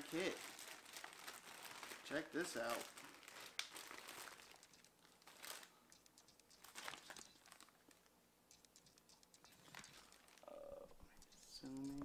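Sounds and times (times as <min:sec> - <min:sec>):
plastic bag crinkling: 0:00.0 - 0:05.8, 0:06.6 - 0:08.0, 0:09.7 - 0:10.5.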